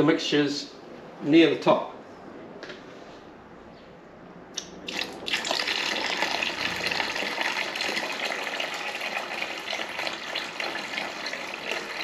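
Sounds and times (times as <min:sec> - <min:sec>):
water pouring into plastic bucket: 0:04.9 - 0:12.0.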